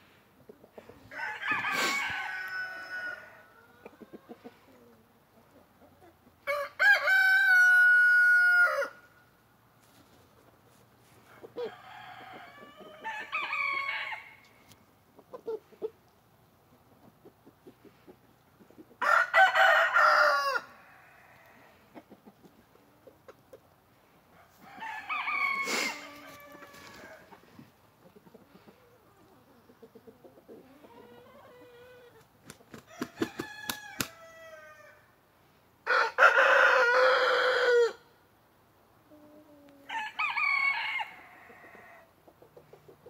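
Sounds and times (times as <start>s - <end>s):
roosters crowing: 0.9s - 4.5s, 6.4s - 9.2s, 11.3s - 14.6s, 19.0s - 21.9s, 24.4s - 27.7s, 32.8s - 35.1s, 35.8s - 38.1s, 39.8s - 42.1s.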